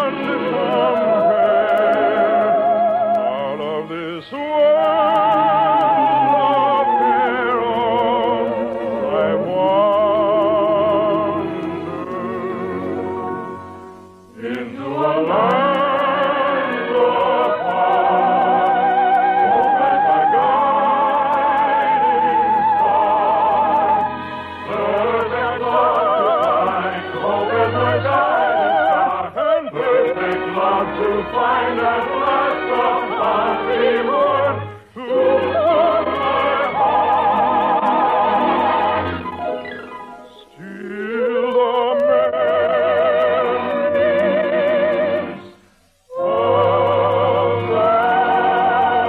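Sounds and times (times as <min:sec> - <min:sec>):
operetta singing with orchestra: 0:00.0 - 0:49.0.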